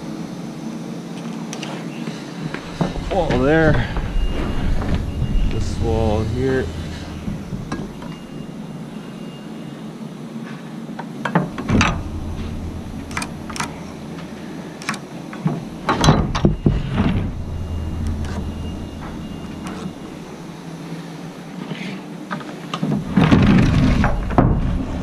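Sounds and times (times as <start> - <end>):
low steady rumble: 2.1 - 9.8, 11.4 - 21.5.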